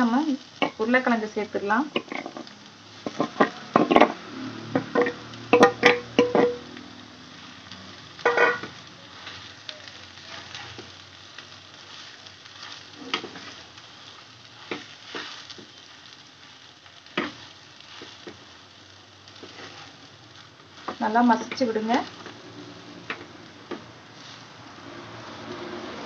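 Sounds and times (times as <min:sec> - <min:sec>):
light sizzle: 0:00.0 - 0:26.0
spatula mashing potatoes: 0:01.8 - 0:06.6, 0:08.2 - 0:24.9.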